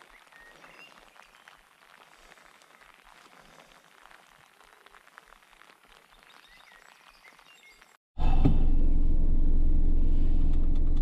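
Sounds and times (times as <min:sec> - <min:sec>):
vehicle engine low rumble: 0:08.2 - 0:11.0.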